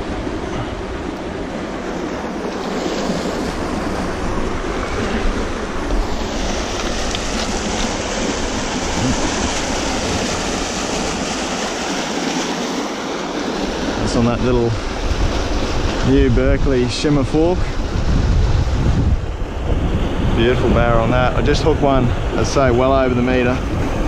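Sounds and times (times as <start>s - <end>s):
river rapids rushing: 0.0s - 16.0s
wind rumbling on microphone: 0.0s - 24.0s.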